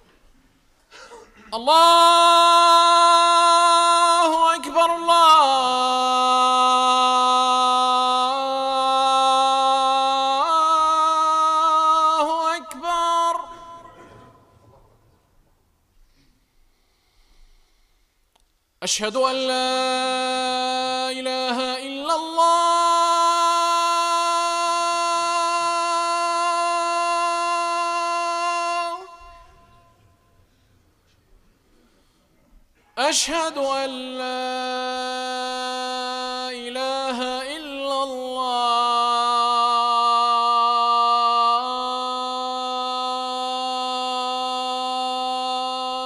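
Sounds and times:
muezzin calling to prayer: 18.8s - 29.9s.

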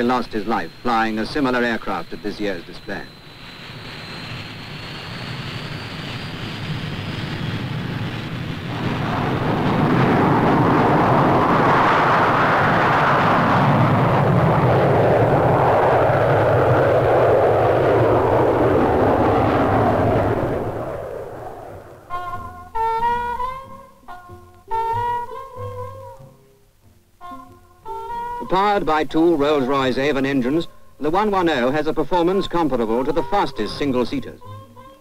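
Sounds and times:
loud jet noise: 0.0s - 23.0s
jet engine whine: 0.0s - 23.7s, 28.3s - 34.4s.

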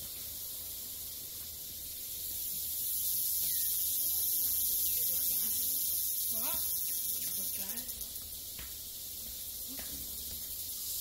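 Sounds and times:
high-pitched hiss: 0.0s - 11.0s
faint distant voices: 3.4s - 10.6s.

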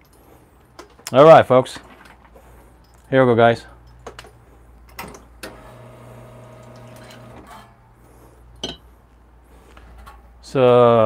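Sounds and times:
faint motor hum: 5.4s - 7.6s.

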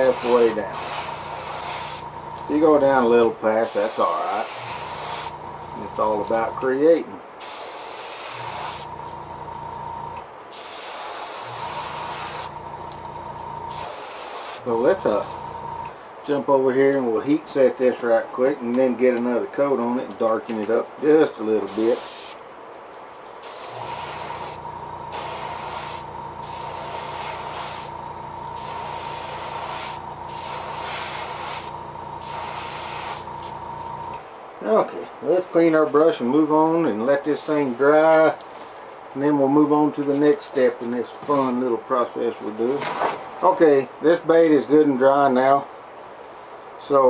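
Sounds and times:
airbrush spraying hiss: 0.0s - 2.1s, 3.6s - 5.4s, 7.4s - 8.9s, 10.5s - 12.6s, 13.7s - 14.7s, 21.7s - 22.4s, 23.4s - 28.0s, 28.6s - 33.4s
low steady hum: 0.0s - 7.4s, 8.2s - 10.6s, 11.4s - 44.8s.

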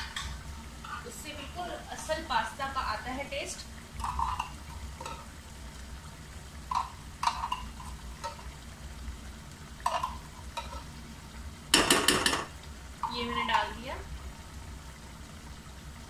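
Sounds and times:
chicken sizzling in a pan: 0.0s - 16.0s
sauce pouring into a pan: 3.7s - 16.0s.

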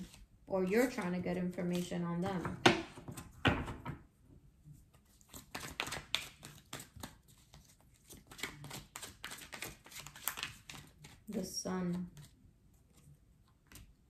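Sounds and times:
cards being shuffled: 0.0s - 2.2s, 4.9s - 14.0s.

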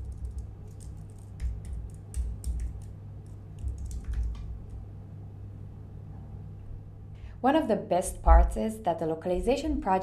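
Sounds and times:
typing on computer keyboard: 0.0s - 4.5s.

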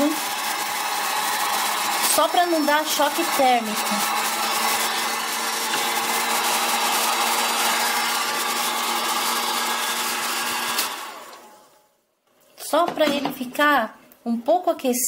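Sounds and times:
heat gun humming: 0.0s - 11.8s.

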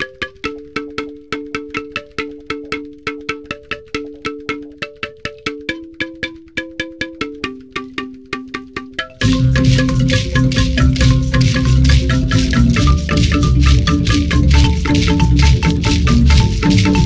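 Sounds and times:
plucked instrument two-note chords: 9.2s - 17.0s.

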